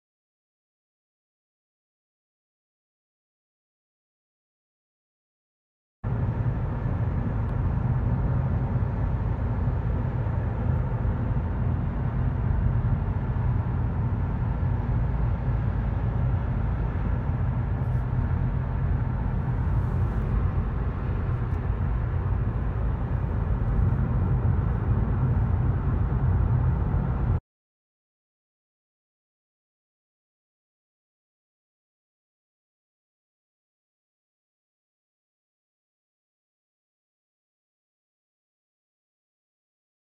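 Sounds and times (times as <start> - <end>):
car cabin road and engine rumble: 6.1 - 27.4.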